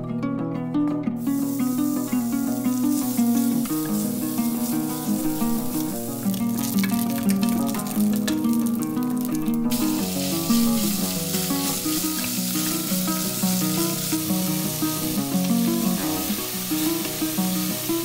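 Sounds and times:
background music: 0.0 - 18.0
meat sizzling in a pot: 1.2 - 18.0.

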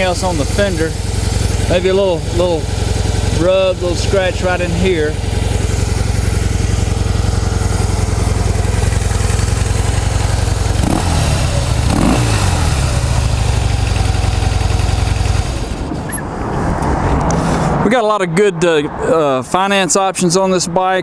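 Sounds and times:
motorcycle engine idling: 0.0 - 16.2
motorcycle engine revving: 0.0 - 17.8.

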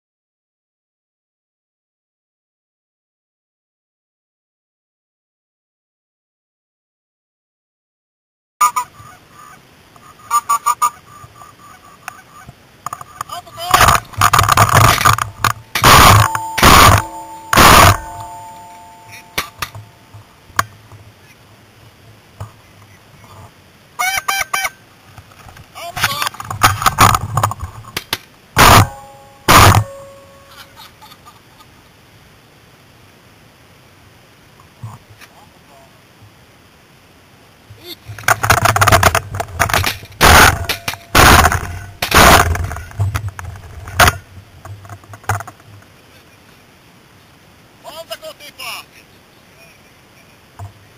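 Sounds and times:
nasal goose honks: 8.6 - 12.5
gun clattering: 13.7 - 19.8, 38.2 - 45.5
loud shotgun shots: 13.8 - 18.5, 28.6 - 30.2, 38.9 - 42.9.

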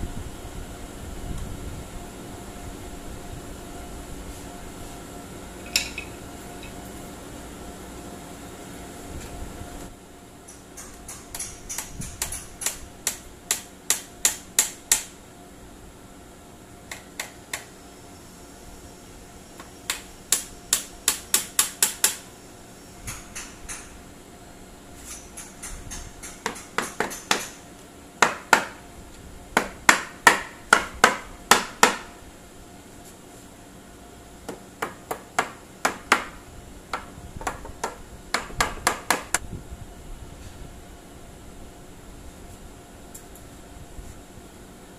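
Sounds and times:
hammer striking nails into wood: 19.9 - 22.2, 25.4 - 27.6, 28.2 - 28.8, 29.6 - 32.1, 34.5 - 39.4.

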